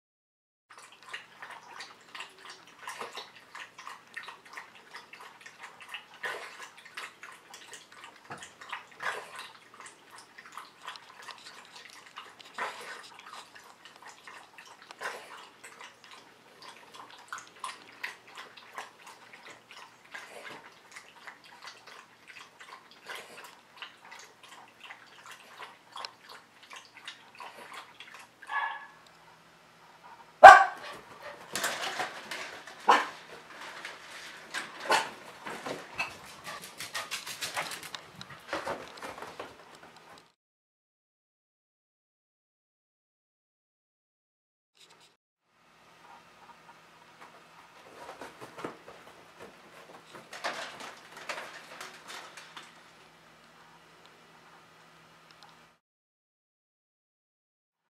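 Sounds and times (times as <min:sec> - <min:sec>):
dog lapping water from metal bowl: 0:00.7 - 0:28.9.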